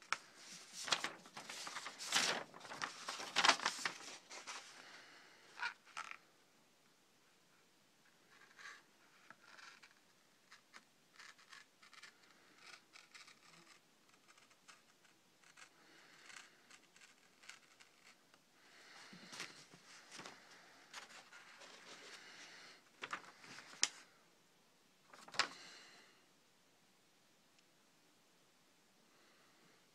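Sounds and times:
paper rustling and crinkling: 0:00.0 - 0:06.2, 0:18.8 - 0:24.0, 0:25.1 - 0:25.7
knife shaving paper: 0:09.4 - 0:18.2.

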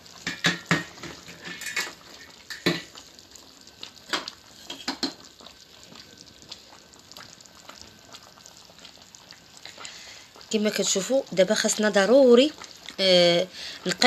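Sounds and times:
metal pot clinking and knocking: 0:00.2 - 0:02.9, 0:04.1 - 0:05.2.

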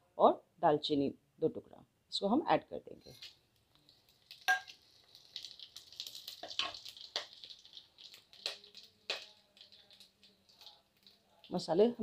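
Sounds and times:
spices sizzling in oil: 0:03.0 - 0:12.0
sharp crackling pops: 0:03.3 - 0:11.6.

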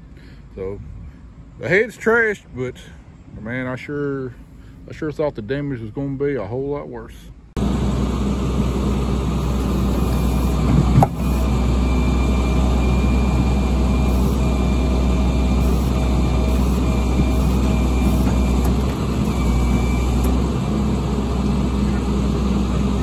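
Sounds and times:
hydraulic whine: 0:07.6 - 0:23.0
truck engine under load: 0:07.6 - 0:23.0.

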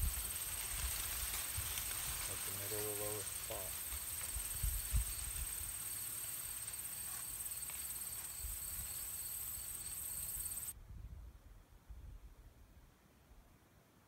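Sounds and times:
insects trilling: 0:00.0 - 0:10.7.

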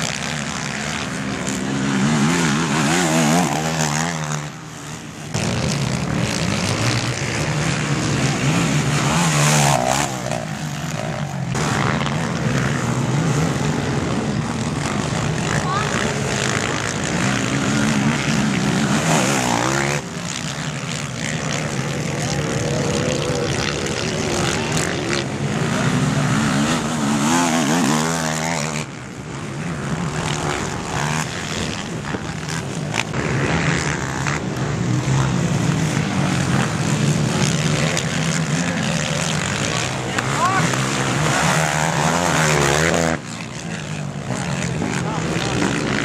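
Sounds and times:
quad engines revving: 0:00.0 - 0:46.0.

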